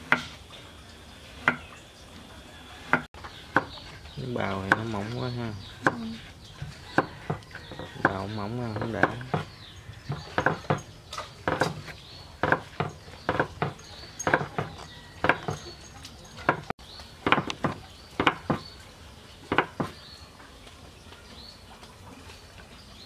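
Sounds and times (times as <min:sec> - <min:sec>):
knife chopping on wooden board: 0:01.4 - 0:01.6, 0:02.8 - 0:03.8, 0:04.6 - 0:05.0, 0:05.8 - 0:15.6, 0:16.4 - 0:18.6, 0:19.5 - 0:20.0.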